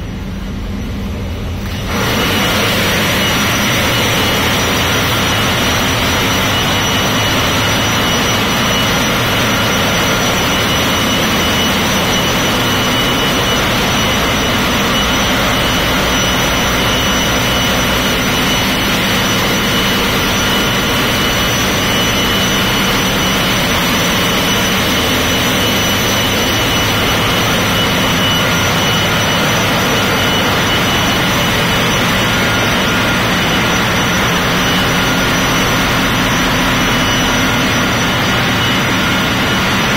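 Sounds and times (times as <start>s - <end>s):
engines and pumps humming: 0.0s - 39.9s
high machinery whines: 0.0s - 39.9s.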